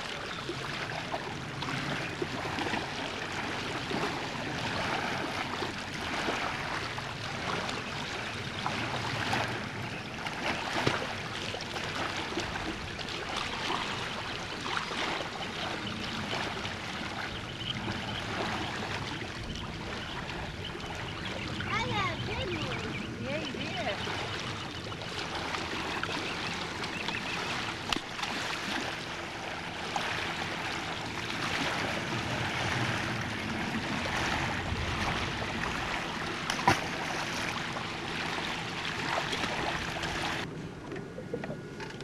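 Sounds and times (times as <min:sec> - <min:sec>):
choppy lake water splashing: 0:00.0 - 0:42.0.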